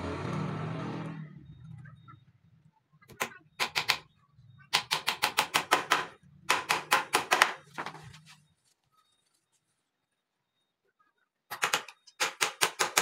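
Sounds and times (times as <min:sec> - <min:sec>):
hammer tapping nails into wood: 0:04.7 - 0:07.6.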